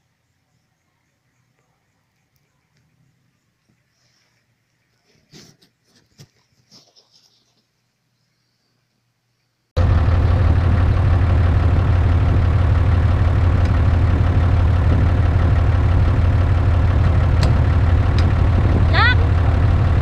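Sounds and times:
diesel engine idling: 9.8s - 20.0s.

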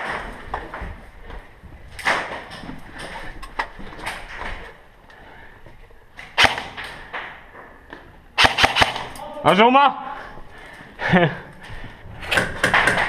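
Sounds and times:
airsoft gun shots: 6.4s - 6.9s, 8.4s - 9.2s.

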